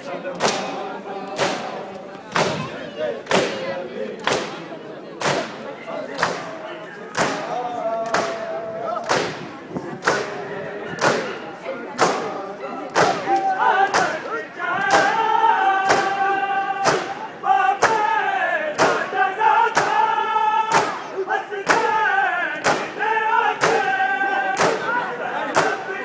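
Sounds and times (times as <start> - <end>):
hands slapping chests in unison: 0.4 - 5.6, 6.2 - 10.4, 11.0 - 11.4, 12.0 - 15.2, 15.8 - 17.2, 17.8 - 18.1, 18.7 - 19.1, 19.7 - 20.0, 20.7 - 22.0, 22.6 - 23.0, 23.6 - 25.9.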